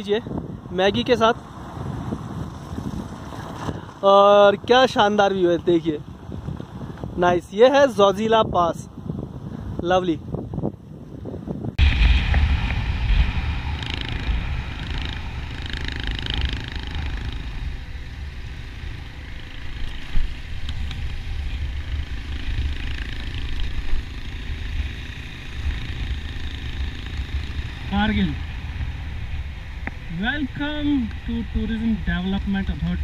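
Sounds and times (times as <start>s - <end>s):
wind rumble on microphone: 0.0s - 33.0s
motorcycle engine running: 11.8s - 31.8s.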